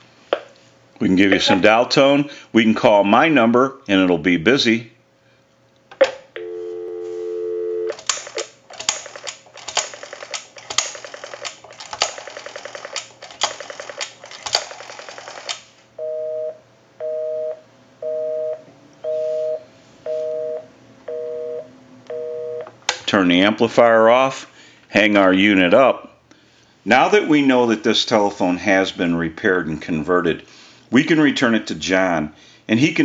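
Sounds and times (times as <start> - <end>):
busy signal beeping: 6.4 - 7.9, 16.0 - 22.6
telephone dial tone: 6.4 - 8.0
rotary dial pulse clicks: 7.9 - 15.7.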